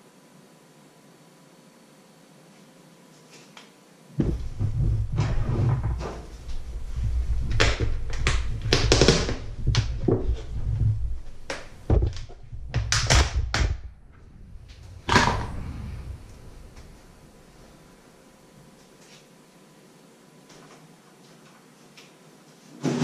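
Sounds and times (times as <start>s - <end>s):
low handling rumble: 4.2s - 18.0s.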